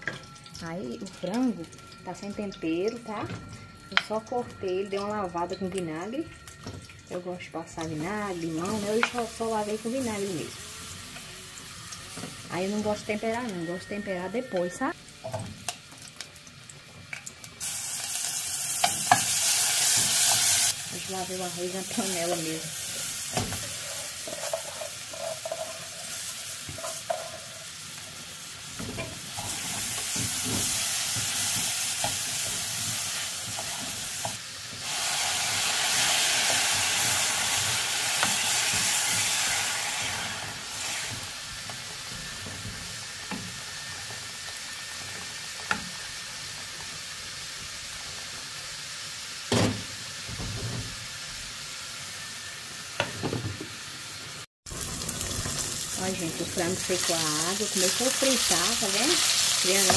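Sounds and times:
rice sizzling in a pot: 0:06.0 - 0:59.9
water poured into hot pot hissing: 0:34.8 - 0:41.2.

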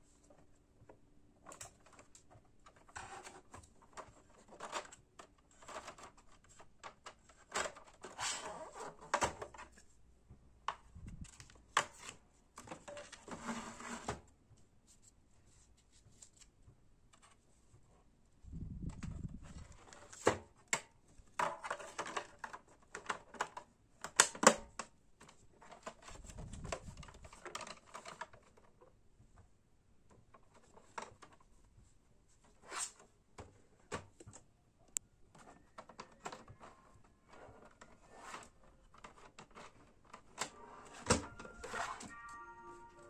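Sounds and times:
plastic clicks and knocks: 0:35.3 - 0:38.0.

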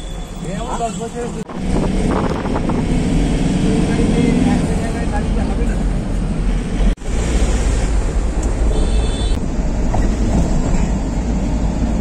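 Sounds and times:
road and engine noise: 0:00.0 - 0:12.0
wind on microphone: 0:01.5 - 0:03.8.

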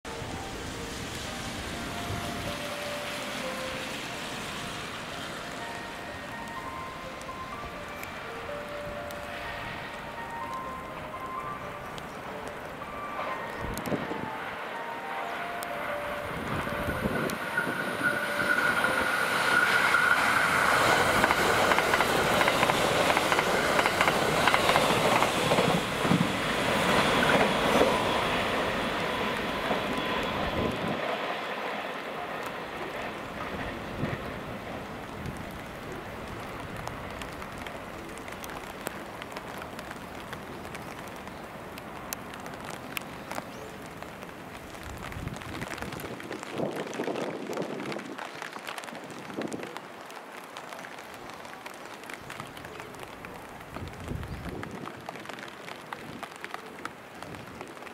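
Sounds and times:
train wheels clacking over rail joints: 0:17.3 - 0:34.8.

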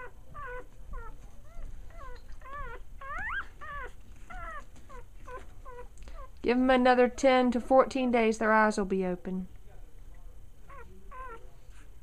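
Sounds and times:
puppies squealing and whimpering: 0:00.0 - 0:06.3, 0:10.7 - 0:11.4.

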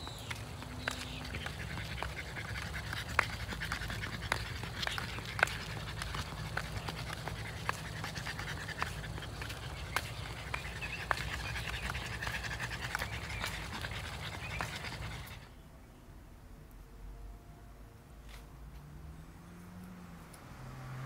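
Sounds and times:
dog panting: 0:00.2 - 0:15.6.

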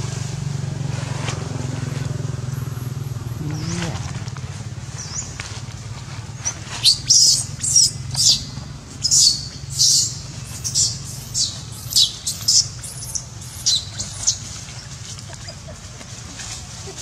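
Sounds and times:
monkey squealing: 0:06.4 - 0:15.9.

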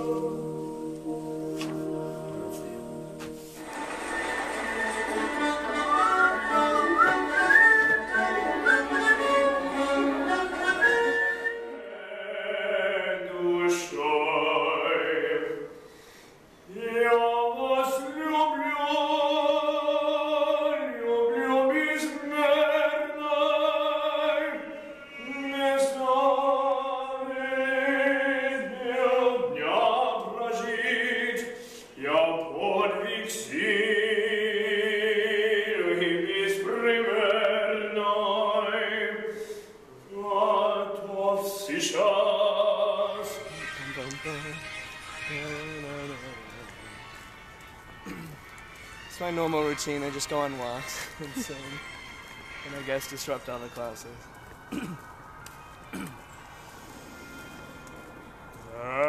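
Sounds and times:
man singing operatically: 0:00.0 - 0:03.0, 0:04.6 - 0:15.8, 0:16.7 - 0:39.4, 0:40.0 - 0:47.1.

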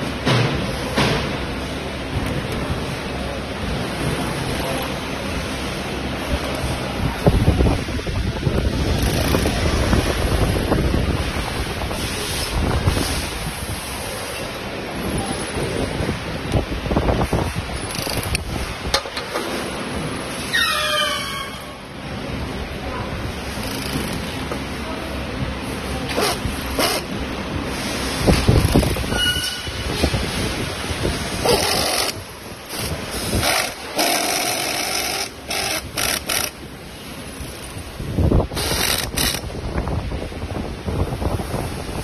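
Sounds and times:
rushing noise on microphone: 0:01.8 - 0:42.0.

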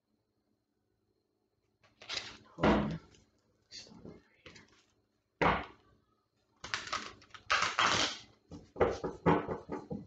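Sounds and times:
cards being shuffled: 0:01.8 - 0:02.5.

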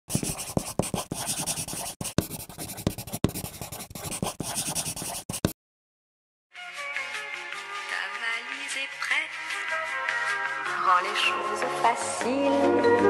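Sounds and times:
pencil scratching on paper: 0:00.1 - 0:05.6
music: 0:06.5 - 0:13.0.

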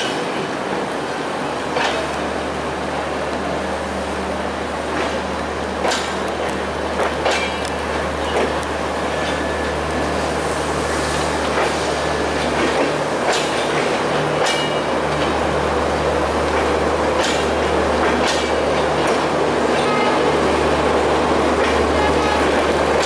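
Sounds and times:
train coaches rumbling past: 0:00.0 - 0:23.0
wheels clacking over rail joints: 0:05.8 - 0:09.4, 0:12.4 - 0:15.4, 0:16.5 - 0:20.1.

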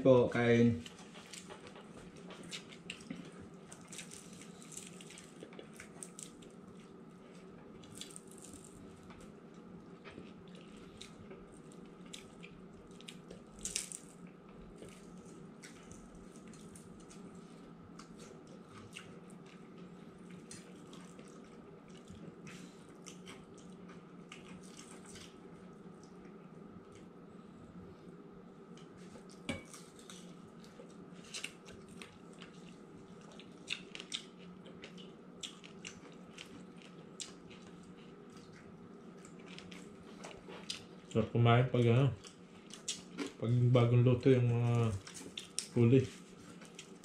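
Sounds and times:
steady low hum: 0:00.0 - 0:47.0
person chewing crispy food: 0:00.8 - 0:27.1, 0:28.8 - 0:41.2, 0:42.2 - 0:43.6, 0:44.6 - 0:47.0.

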